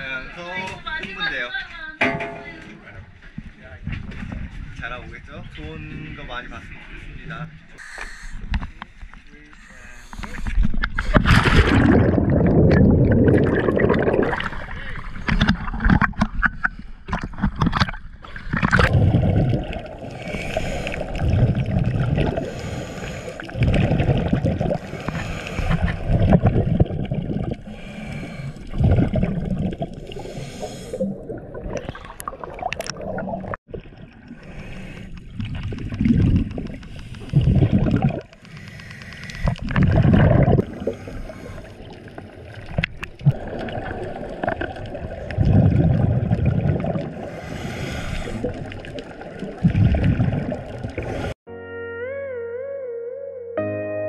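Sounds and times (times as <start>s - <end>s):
water sloshing: 2.0s - 4.7s, 8.7s - 51.4s
bubbles gurgling underwater: 10.8s - 16.5s, 17.1s - 22.8s, 23.4s - 34.5s, 35.2s - 38.4s, 39.4s - 51.3s.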